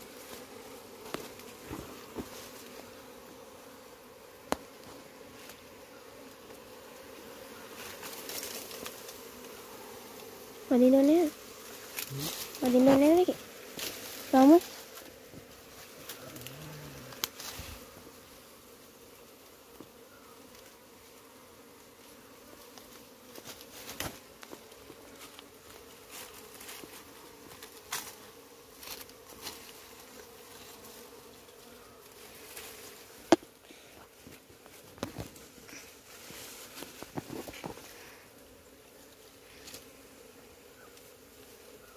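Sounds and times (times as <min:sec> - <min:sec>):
honeybees buzzing: 0:00.0 - 0:41.9.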